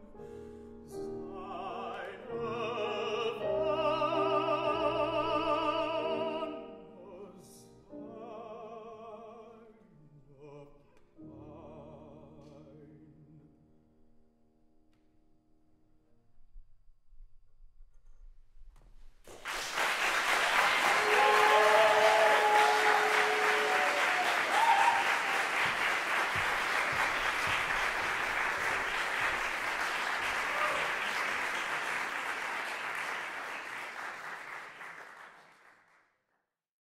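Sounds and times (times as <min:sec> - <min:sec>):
audience applauding: 0:19.3 - 0:36.1.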